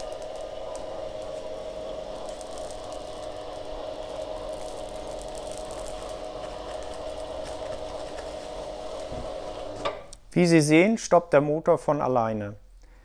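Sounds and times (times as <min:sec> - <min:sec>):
blind motor humming: 0:00.0 - 0:10.1.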